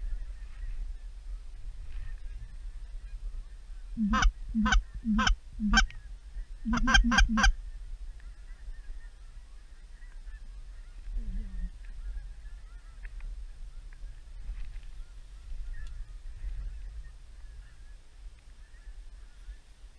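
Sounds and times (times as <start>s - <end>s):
wind rumble on microphone: 0.0s - 19.9s
loud goose honks: 4.0s - 5.9s, 6.7s - 7.6s
distant goose honking: 4.0s - 6.0s, 6.7s - 7.6s.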